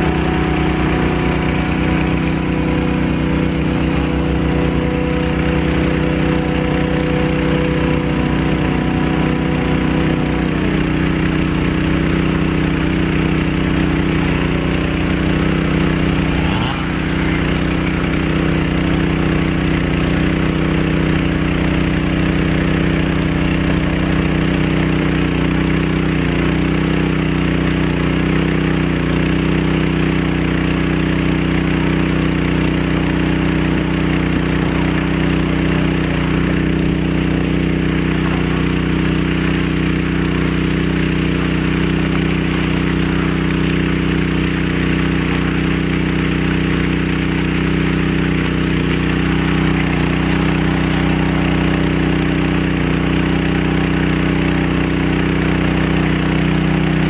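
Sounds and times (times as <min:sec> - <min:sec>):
faint higher whine: 0:00.0 - 0:20.3, 0:47.3 - 0:57.0
small gasoline engine running: 0:00.0 - 0:57.0.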